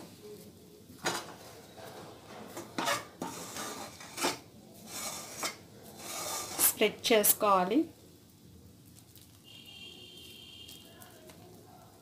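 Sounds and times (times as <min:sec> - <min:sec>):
metal utensil scraping cookware: 0:01.0 - 0:06.8.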